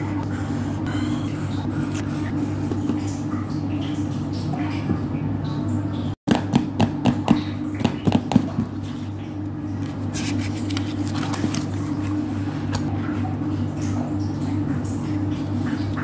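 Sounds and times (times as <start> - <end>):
notebook pages flipping: 9.8 - 12.9.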